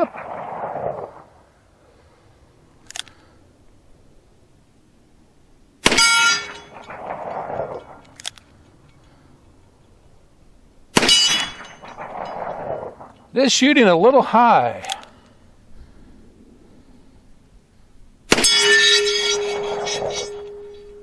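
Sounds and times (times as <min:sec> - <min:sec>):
metallic ring of steel target: 0:05.8 - 0:08.0, 0:11.0 - 0:12.8, 0:18.3 - 0:21.0
gunshot echo: 0:11.0 - 0:13.0, 0:18.3 - 0:20.7.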